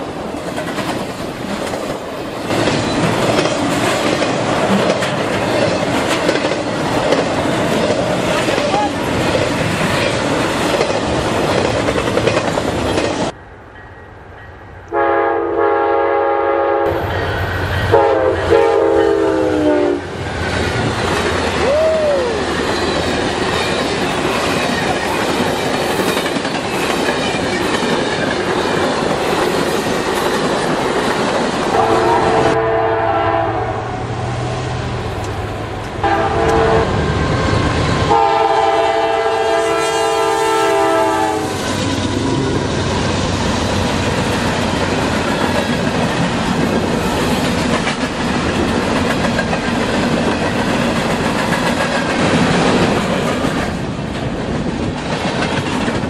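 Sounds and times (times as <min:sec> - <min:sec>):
locomotive air horn: 0:14.9 - 0:17.1, 0:17.8 - 0:20.1, 0:31.7 - 0:34.1, 0:36.0 - 0:42.6.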